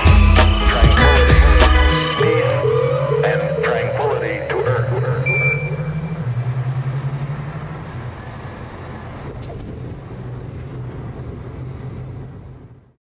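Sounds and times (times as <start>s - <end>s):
aircraft engine and propeller droning: 1.9s - 13.0s.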